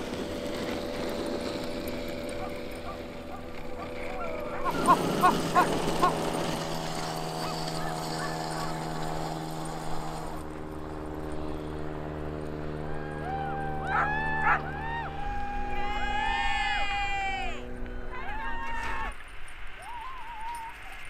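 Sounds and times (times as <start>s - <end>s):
engine idling: 0.0s - 18.4s
dogs yipping and whining: 2.2s - 6.3s, 13.5s - 15.2s.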